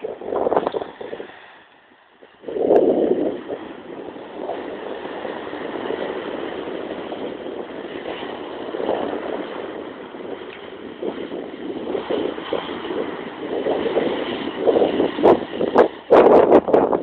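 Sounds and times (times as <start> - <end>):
waves breaking on a beach: 0.0 - 11.4
wind on microphone: 0.0 - 17.0.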